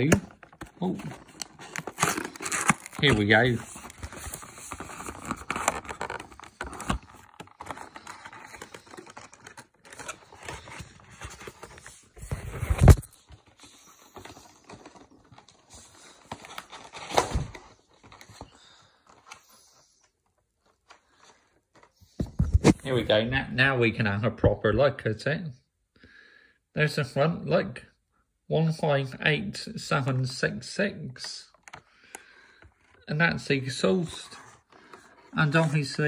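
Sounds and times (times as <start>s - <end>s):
packaging rustling: 0.0s - 19.4s, 31.5s - 33.1s, 33.7s - 36.0s.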